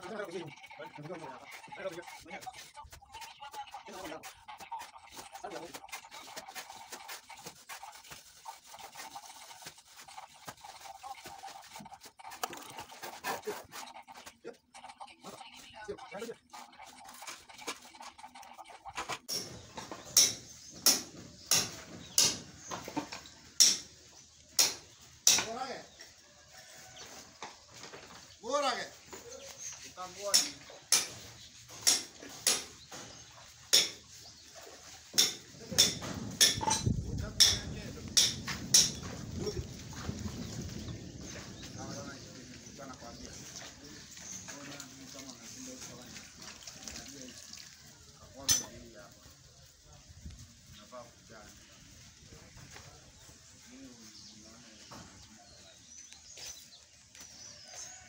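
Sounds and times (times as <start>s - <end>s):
trowels scraping wet plaster: 0.0s - 22.7s.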